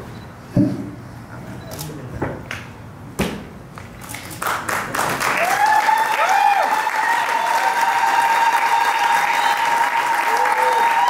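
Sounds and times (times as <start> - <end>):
people clapping: 3.8 - 11.0
high-pitched cheer: 5.3 - 11.0.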